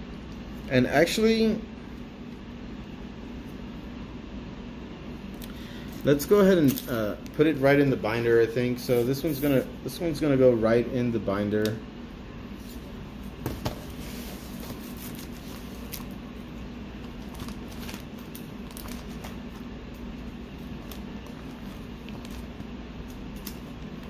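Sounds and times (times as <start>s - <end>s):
steady low hum: 0.0s - 24.0s
card in plastic sleeve rustling: 13.9s - 24.0s.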